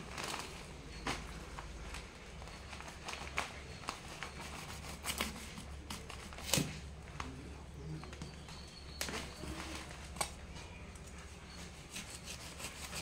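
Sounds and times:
fruit shifting on newspaper: 0:00.0 - 0:13.0
knife scraping fruit rind: 0:11.5 - 0:13.0.

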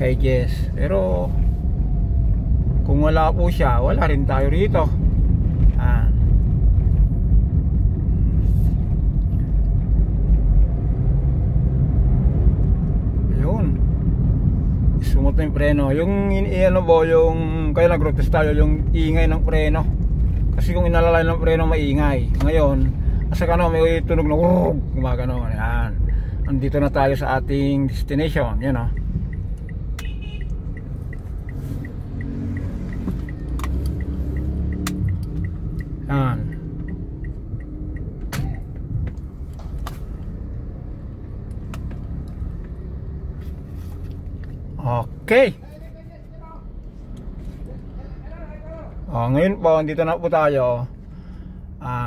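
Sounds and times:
car engine and tyre rumble: 0:00.0 - 0:52.0
turn signal ticking: 0:00.0 - 0:52.0
sharp clicks: 0:28.9 - 0:40.3.

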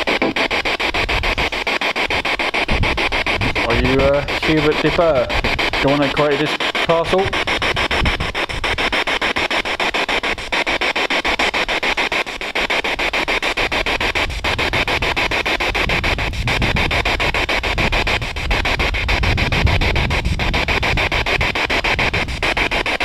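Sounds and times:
radio static hiss: 0:00.0 - 0:23.0
rapid even clicks: 0:00.0 - 0:23.0.

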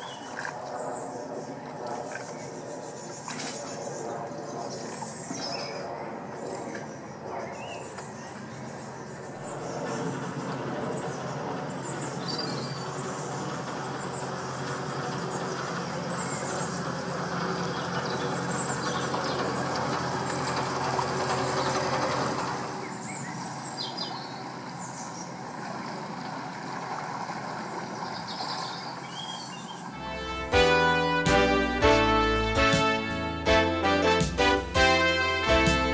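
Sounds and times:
birds chirping: 0:00.0 - 0:25.6
boat diesel engine running: 0:09.2 - 0:35.9
piano music: 0:30.0 - 0:35.9.

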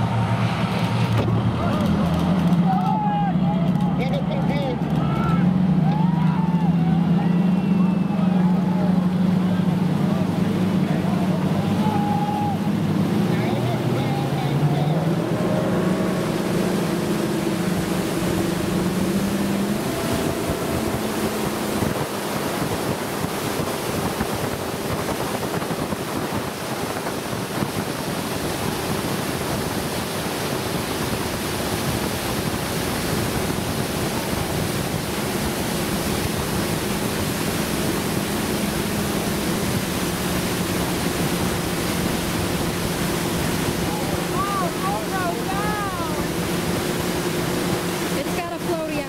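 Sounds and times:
boat motor hum: 0:00.0 - 0:49.0
water hissing past boat: 0:07.4 - 0:49.0
wind on microphone: 0:15.0 - 0:49.0.

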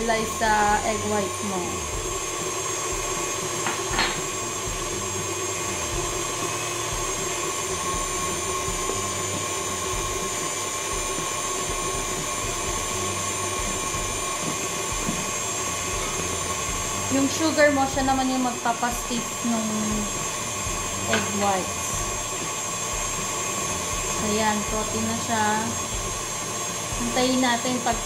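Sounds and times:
stand mixer whisking: 0:00.0 - 0:28.0.

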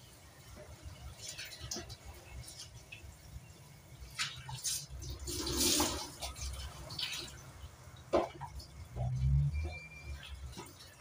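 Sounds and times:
tap water splashing: 0:00.5 - 0:03.2, 0:04.0 - 0:09.3, 0:10.2 - 0:11.0.

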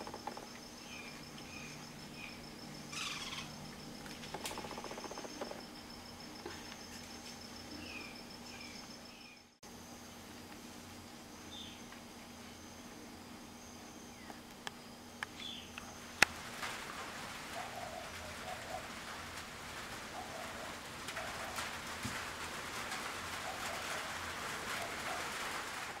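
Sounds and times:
pigeon cooing: 0:17.5 - 0:19.1, 0:20.0 - 0:22.0, 0:23.3 - 0:25.8.

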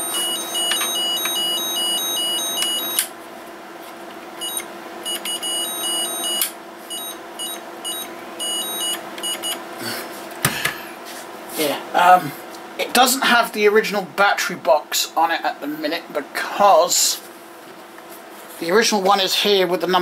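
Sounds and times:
electronic two-tone toy siren: 0:00.0 - 0:03.1, 0:04.4 - 0:09.0.

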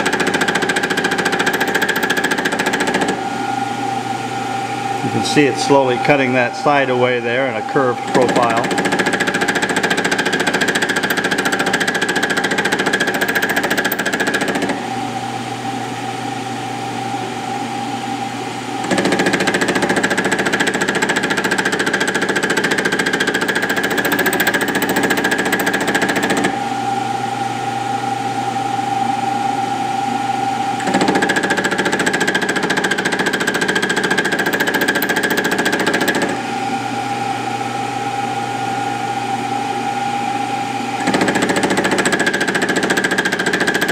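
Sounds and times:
spindle and motor running: 0:00.0 - 0:14.9, 0:18.8 - 0:26.6, 0:30.8 - 0:36.7, 0:39.9 - 0:43.9
milling machine cutting steel: 0:05.0 - 0:14.7, 0:41.0 - 0:43.9.

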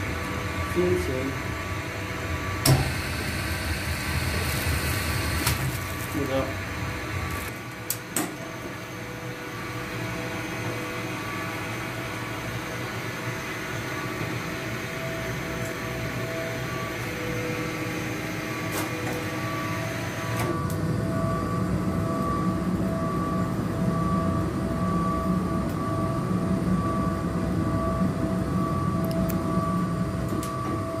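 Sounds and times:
boiler machinery humming: 0:00.0 - 0:31.0
faint pulsing tone: 0:08.5 - 0:31.0.

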